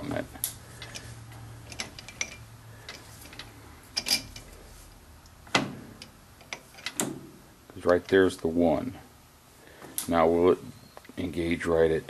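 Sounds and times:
lathe mechanism metal clicks: 0.0 - 4.6, 5.2 - 7.2
low steady hum: 0.0 - 12.0.

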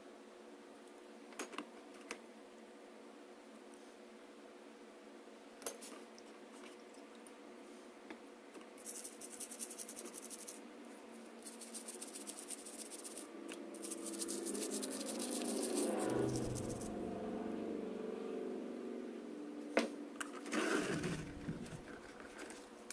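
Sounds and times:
toothbrush scrubbing plastic: 8.8 - 10.6, 11.4 - 16.9.

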